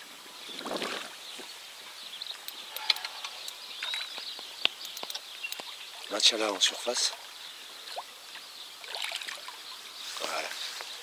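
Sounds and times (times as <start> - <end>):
small clicks: 2.4 - 5.7
fish splashing in water: 7.8 - 9.8.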